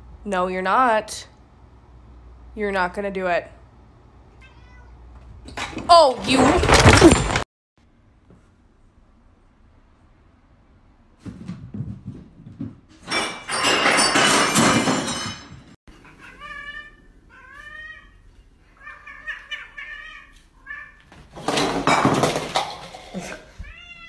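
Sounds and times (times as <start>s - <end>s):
cat meowing: 4.3s - 5.0s, 16.0s - 18.2s, 18.8s - 21.1s, 23.6s - 24.0s.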